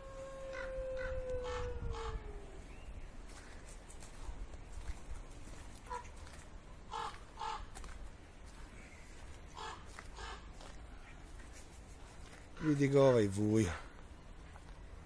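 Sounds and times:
crow cawing: 6.9s - 7.8s, 9.6s - 10.5s.

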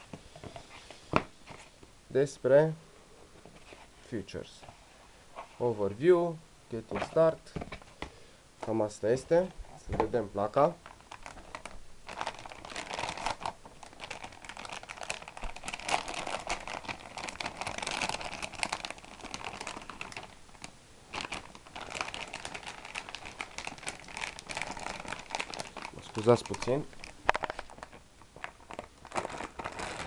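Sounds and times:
plastic bag crinkling: 10.1s - 30.0s.

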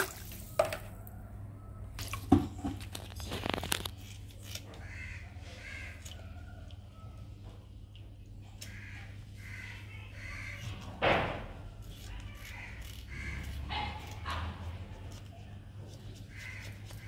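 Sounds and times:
crows cawing: 4.7s - 6.2s, 8.6s - 10.8s, 12.4s - 13.9s, 16.3s - 17.0s
scissors snipping fish fins: 11.9s - 14.4s.

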